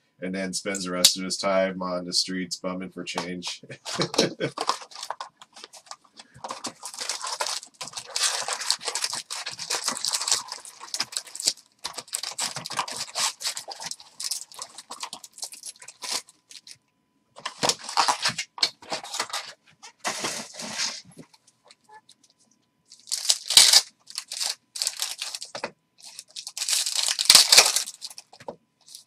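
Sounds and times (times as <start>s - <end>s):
foil wrappers crinkling and tearing: 3.8s - 16.8s, 17.4s - 21.0s, 22.9s - 29.0s.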